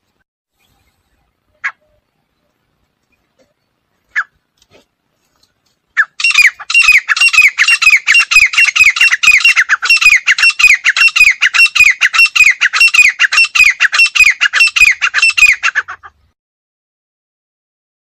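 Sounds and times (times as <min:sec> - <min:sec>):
francolin calling: 0:05.9 - 0:16.1.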